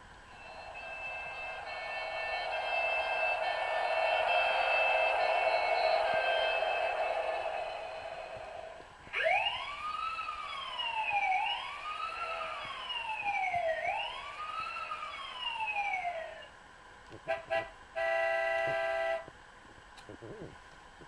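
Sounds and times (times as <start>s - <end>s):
steady electronic horn tone: 0.3s - 7.2s, 17.3s - 19.3s
electronic siren wailing: 9.1s - 16.5s.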